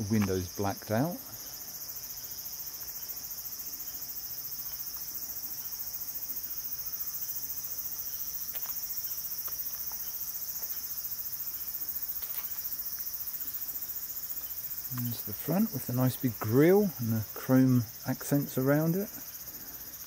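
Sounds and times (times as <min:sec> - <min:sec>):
high-pitched insect chorus: 0:00.0 - 0:20.0
faint ticks: 0:11.9 - 0:15.3.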